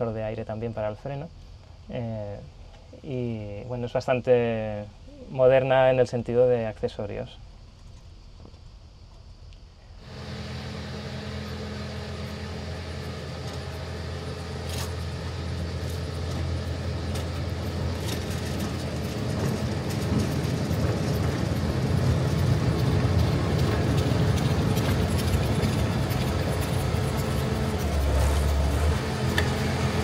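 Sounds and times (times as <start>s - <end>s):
locomotive engine running: 10.0s - 30.0s.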